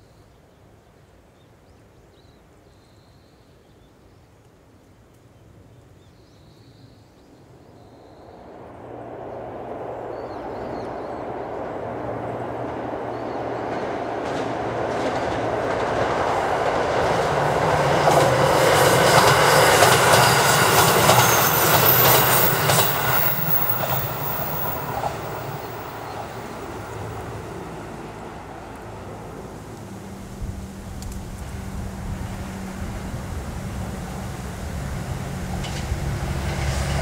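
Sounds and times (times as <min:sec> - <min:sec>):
train engine drone: 0:07.8 - 0:37.0
wheels clicking over rail joints: 0:12.6 - 0:27.3, 0:35.4 - 0:37.0.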